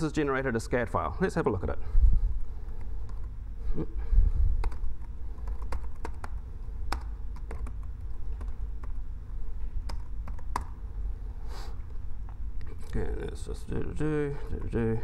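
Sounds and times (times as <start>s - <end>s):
low steady rumble: 0.0s - 15.0s
keyboard key clicks: 9.9s - 10.8s.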